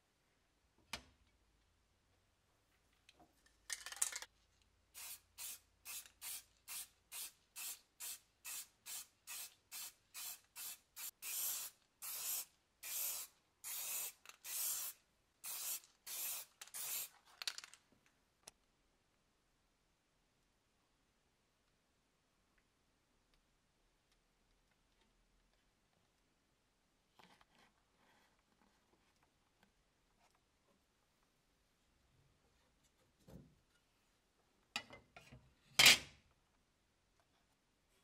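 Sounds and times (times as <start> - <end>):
aerosol can spraying: 5.0 - 17.1.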